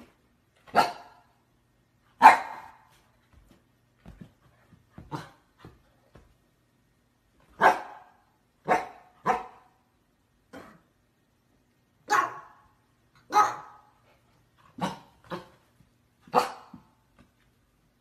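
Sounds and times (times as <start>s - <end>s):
dog barking: 0.7s - 1.3s, 2.2s - 2.9s, 7.6s - 9.8s, 12.1s - 12.6s, 13.3s - 13.9s, 16.3s - 16.8s.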